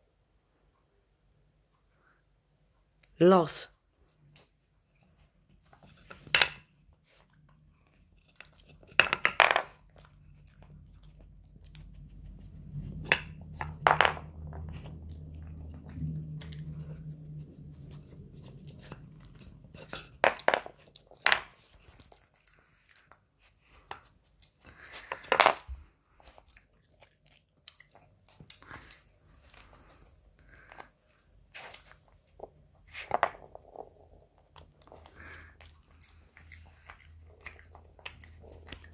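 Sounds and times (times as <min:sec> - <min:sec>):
wooden pegs knocking and clattering: 0:06.1 - 0:06.6, 0:08.8 - 0:09.8, 0:13.0 - 0:14.3, 0:19.9 - 0:21.5, 0:25.3 - 0:25.7
dog crunching treats: 0:07.4 - 0:38.9.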